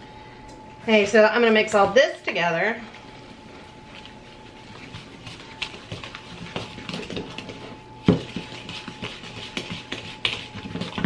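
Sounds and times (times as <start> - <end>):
wooden spoon stirring batter in bowl: 3.9 - 11.0.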